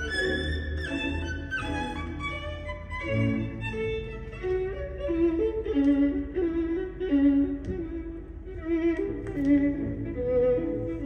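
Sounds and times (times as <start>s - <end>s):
classical string music: 0.0s - 11.0s.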